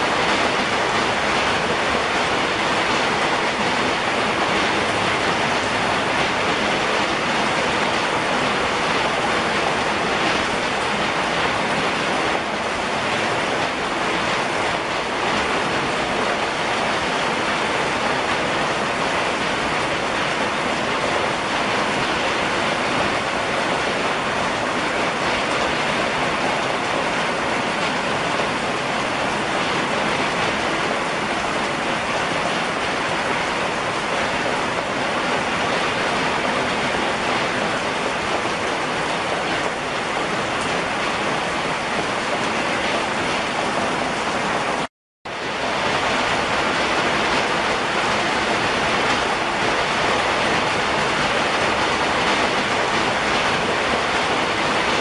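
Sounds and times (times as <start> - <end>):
rain on wooden deck: 0.0 - 55.0.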